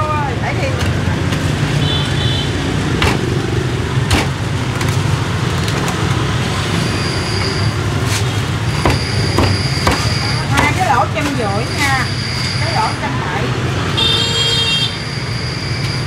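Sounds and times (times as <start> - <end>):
road traffic rumble: 0.0 - 16.0
cleaver chopping on wooden board: 8.8 - 10.8.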